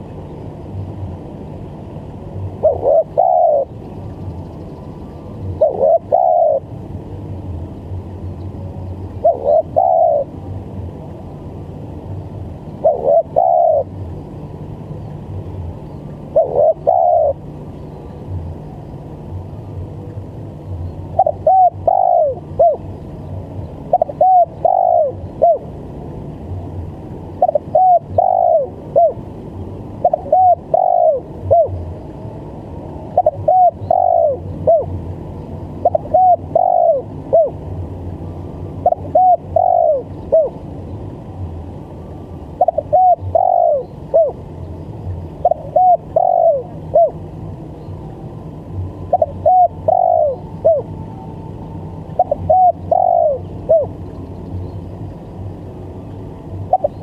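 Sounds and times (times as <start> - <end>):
steady low hum: 0.0 - 57.0
dove cooing: 2.6 - 3.8, 5.5 - 6.7, 9.2 - 10.3, 12.8 - 13.9, 16.3 - 17.5, 21.1 - 22.9, 23.9 - 25.7, 27.4 - 29.2, 30.0 - 31.8, 33.1 - 34.9, 35.8 - 37.6, 38.8 - 40.6, 42.6 - 44.4, 45.4 - 47.2, 49.0 - 51.4, 52.0 - 54.0, 56.7 - 57.0.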